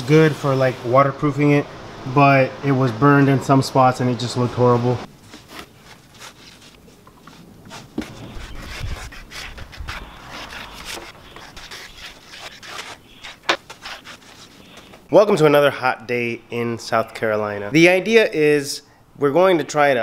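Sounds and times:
sponge scrubbing wooden workbench: 5.3 - 15.0.

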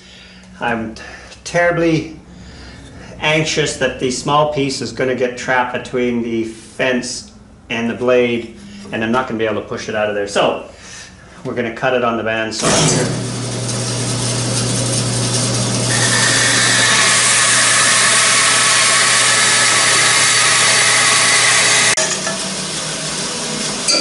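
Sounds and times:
bandsaw cutting wood: 12.6 - 22.4
bandsaw motor hum: 12.6 - 24.0.

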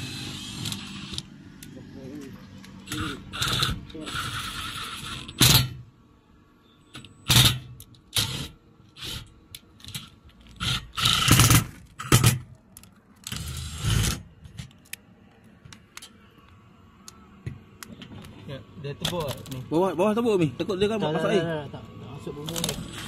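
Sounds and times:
cordless driver driving screws: 2.8 - 5.7.

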